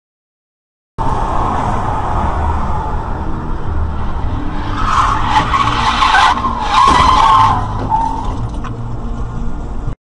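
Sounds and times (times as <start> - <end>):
car tyres screeching: 1.0 - 8.8
road and engine rumble: 1.0 - 10.0.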